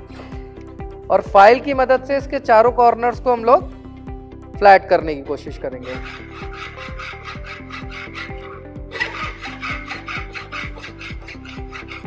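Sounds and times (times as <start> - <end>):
hand file rasping on metal: 5.8 - 12.0.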